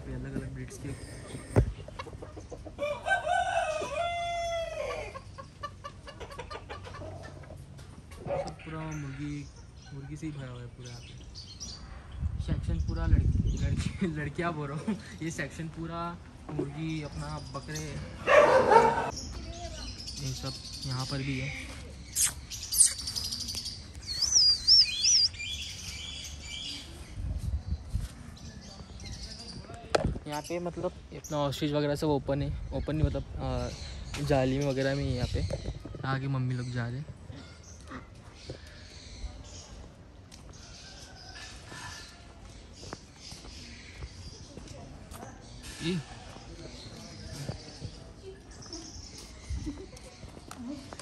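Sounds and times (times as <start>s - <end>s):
birds chirping: 0.0s - 51.0s
chickens clucking: 0.3s - 10.5s
rooster crowing: 2.8s - 5.1s
high warbling bird whistle: 22.1s - 25.7s.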